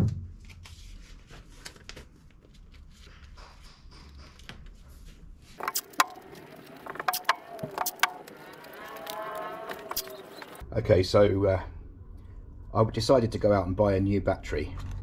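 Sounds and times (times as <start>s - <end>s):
masking tape crackling snaps: 5.6s - 10.6s
tape screeching off roll: 5.6s - 10.6s.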